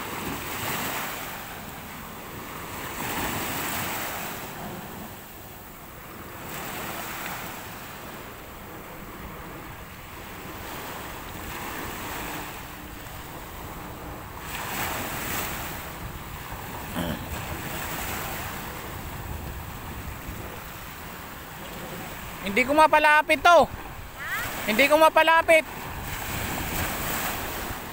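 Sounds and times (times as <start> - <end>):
waves breaking on shore: 0.0 - 27.9
wind rumbling on microphone: 7.7 - 22.6, 23.6 - 24.7, 25.7 - 27.9.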